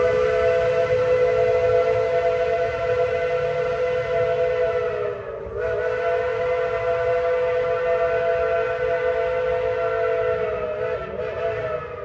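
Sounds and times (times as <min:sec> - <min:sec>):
steam locomotive whistle: 0:00.0 - 0:12.0.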